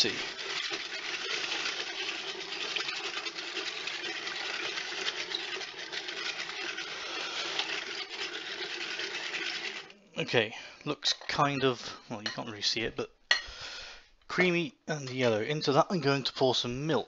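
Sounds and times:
whisk beating eggs in a bowl: 0:00.0 - 0:10.0.

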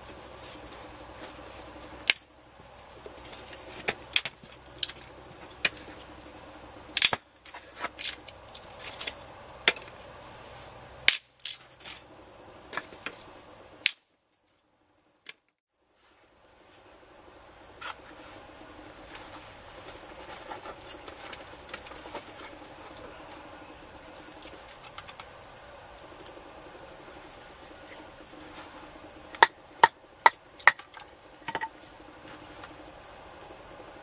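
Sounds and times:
low background noise: 0:00.0 - 0:34.0
dry sticks snapping: 0:02.0 - 0:02.3, 0:07.0 - 0:10.0, 0:11.1 - 0:12.0, 0:13.8 - 0:14.1.

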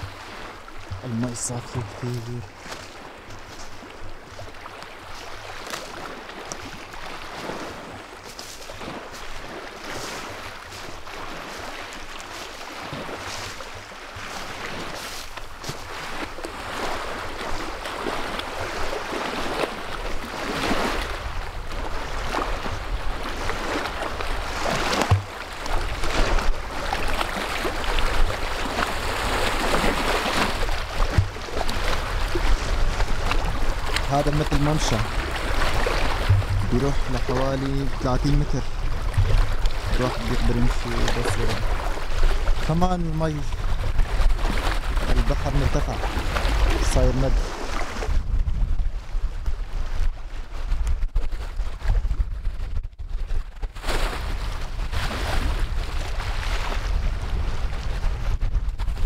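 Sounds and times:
waves lapping on rocks: 0:00.0 - 0:48.3, 0:49.0 - 0:59.0
wind on microphone: 0:14.2 - 0:59.0.

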